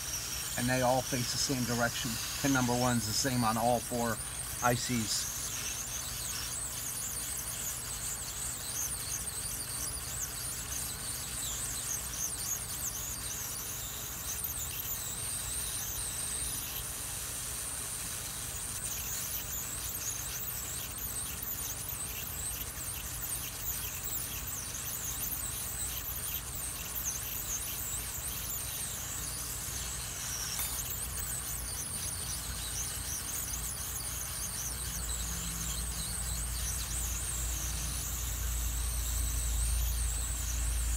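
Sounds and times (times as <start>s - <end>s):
hot air blower whistling: 0.0s - 40.9s.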